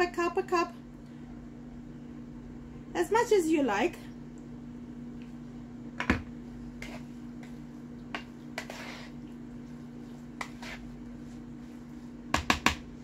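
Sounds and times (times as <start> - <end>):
steady low hum: 0.0 - 13.0
spoon scraping pot: 6.7 - 9.4, 10.0 - 11.5.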